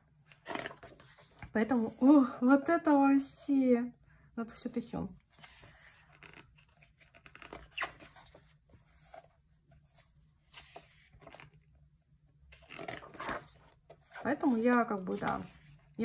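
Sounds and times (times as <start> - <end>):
paper and plastic rustling: 12.5 - 16.0.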